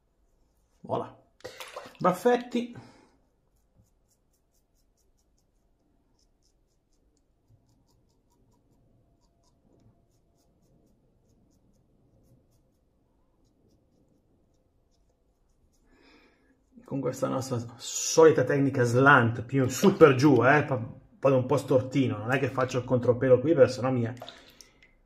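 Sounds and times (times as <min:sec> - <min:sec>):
razor scratching stubble: 0:03.3 - 0:15.9.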